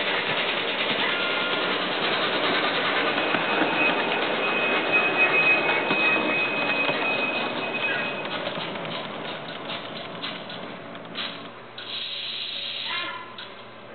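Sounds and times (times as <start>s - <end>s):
steam locomotive sounds from small speaker: 0.0s - 13.9s
thin steady high tone: 2.4s - 8.4s.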